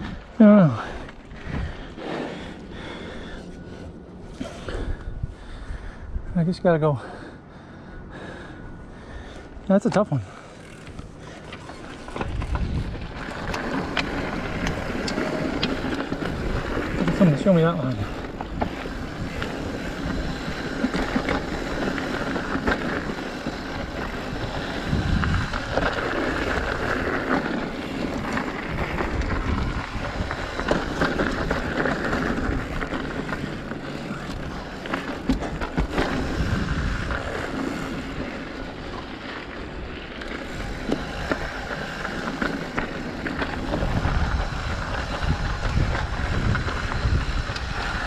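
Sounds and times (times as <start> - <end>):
bike clicks and rattles: 0.0 - 48.0
wind noise on microphone: 4.3 - 6.4, 12.0 - 17.3, 18.0 - 38.5, 39.8 - 48.0
tyres rolling over dirt and rock: 9.7 - 48.0.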